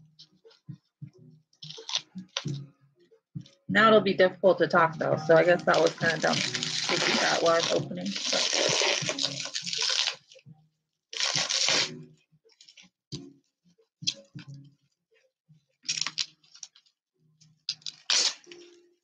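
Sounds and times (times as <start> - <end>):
plastic wrap crinkling and tearing: 1.6 - 2.5, 5.6 - 10.4, 11.2 - 12.0, 15.8 - 16.9, 17.7 - 18.8.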